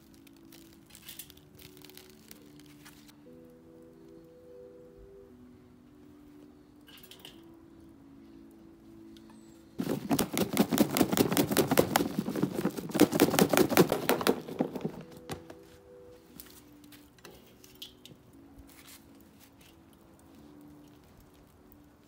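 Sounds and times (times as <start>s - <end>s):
crusty bread crunching: 0.0s - 3.2s.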